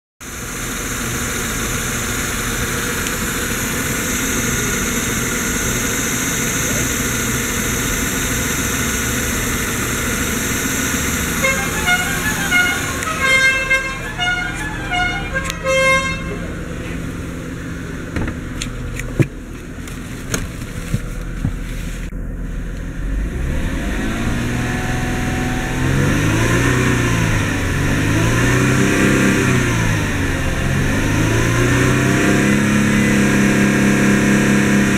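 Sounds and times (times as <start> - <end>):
car engine running and revving: 0.2 - 34.9
short pitched toots: 10.8 - 17.0.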